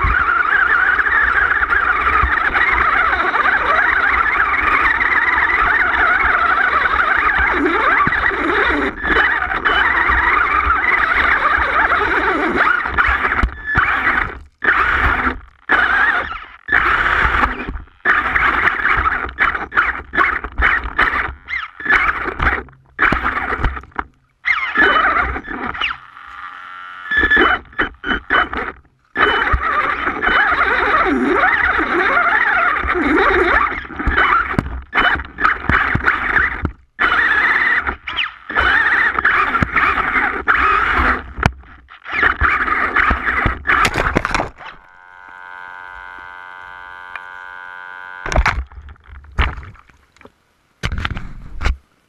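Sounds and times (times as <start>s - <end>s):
electric motor whine and rattle: 0.0s - 49.2s
steady buzzing tone: 0.0s - 49.6s.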